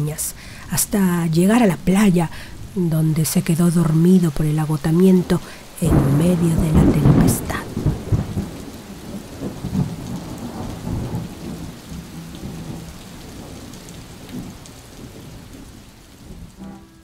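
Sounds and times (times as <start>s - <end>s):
heavy rain: 0.0s - 17.0s
rolling thunder: 5.9s - 17.0s.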